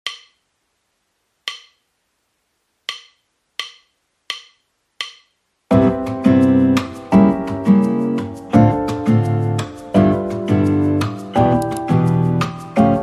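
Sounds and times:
wood-block-like taps: 0.0s - 0.4s, 1.5s - 1.8s, 2.9s - 5.4s
guitar tune: 5.7s - 13.0s.

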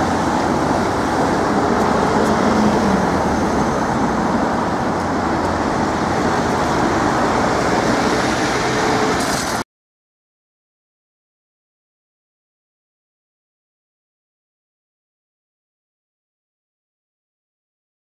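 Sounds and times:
road traffic: 0.0s - 9.6s.

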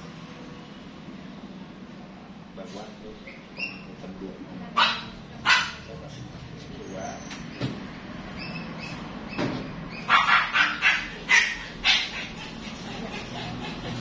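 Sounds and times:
dog barking: 4.8s - 5.9s, 10.0s - 13.2s.

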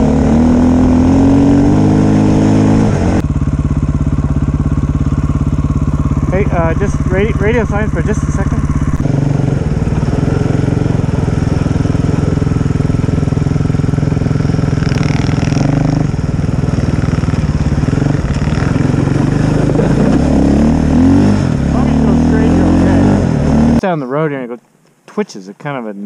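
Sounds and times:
dirt bike engine running: 0.0s - 23.8s.

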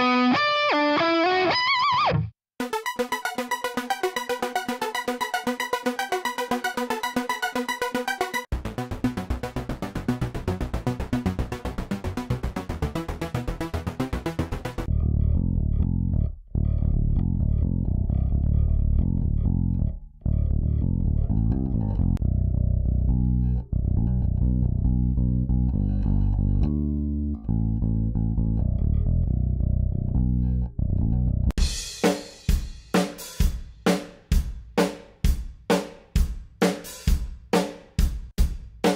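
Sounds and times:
drum loop with hi-hat and kick: 2.6s - 14.9s, 31.6s - 38.9s
pulsing synth loop: 2.6s - 14.9s
heavy bass guitar riff: 8.5s - 31.8s.

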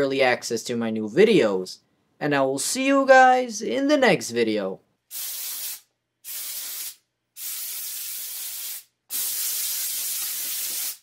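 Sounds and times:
compressed air blasts hissing: 5.1s - 11.0s.

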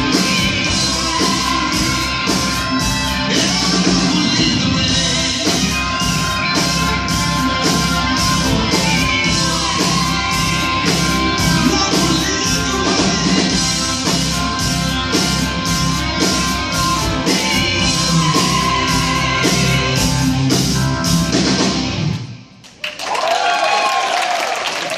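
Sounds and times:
voices singing: 0.0s - 14.0s, 16.0s - 20.4s
drum kit beat: 0.0s - 22.2s
electric guitars: 0.0s - 22.5s
keyboards: 0.0s - 22.5s.

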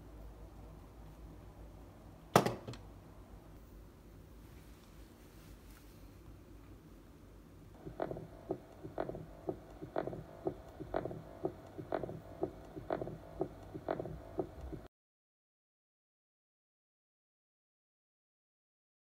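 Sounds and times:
heartbeat through tablet speaker: 7.8s - 14.9s.

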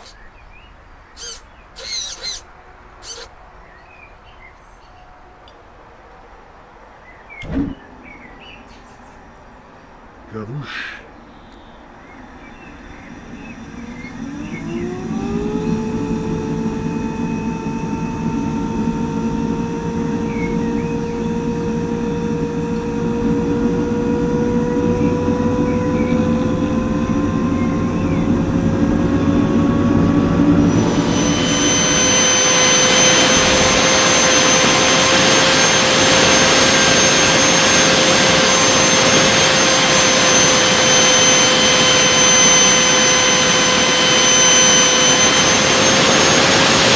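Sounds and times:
turbojet engine whine: 0.0s - 4.4s, 9.6s - 46.9s
low rumble: 23.1s - 45.8s
rushing jet noise: 26.2s - 46.9s.

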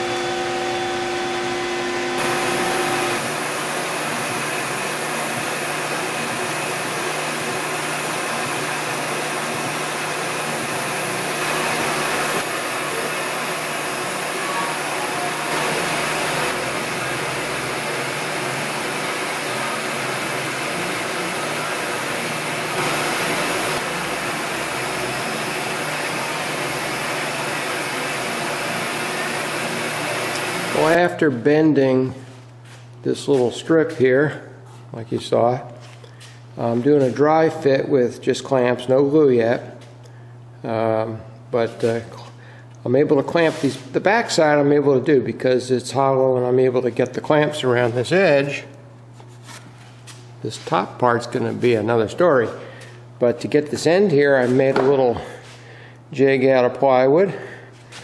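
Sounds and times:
machine motor hum: 0.0s - 31.4s
rushing blower noise: 0.0s - 31.8s.

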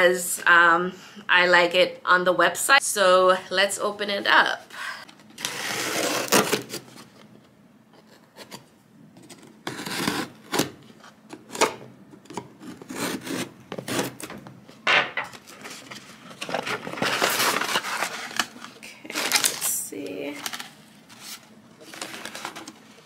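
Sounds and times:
knife scraping cardboard: 9.3s - 10.7s, 12.3s - 14.3s.

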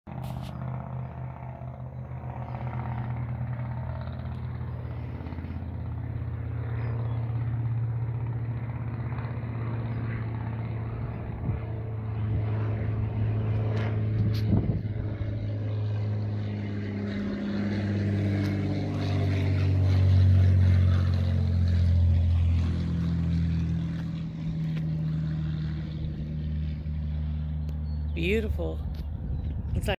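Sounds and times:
propeller airplane engine droning: 0.1s - 29.9s
wind noise on microphone: 14.1s - 15.3s, 28.8s - 29.9s.

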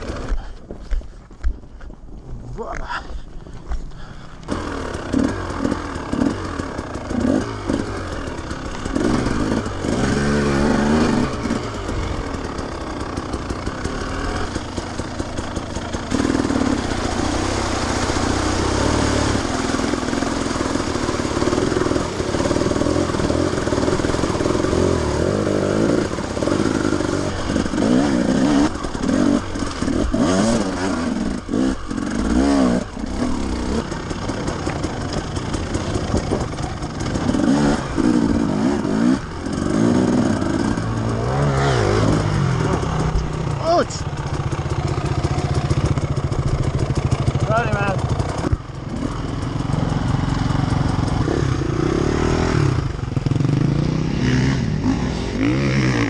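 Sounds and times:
motorcycle engine revving: 0.0s - 0.6s, 4.0s - 56.0s
motorcycle splashing through water: 4.5s - 56.0s.

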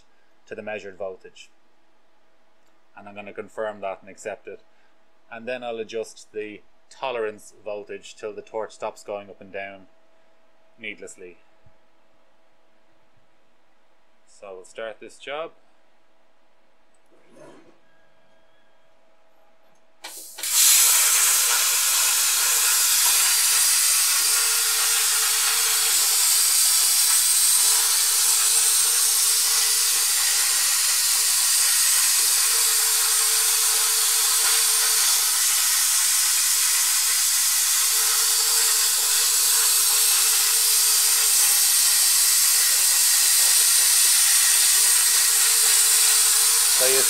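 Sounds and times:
plasma cutter hissing: 20.0s - 47.0s.

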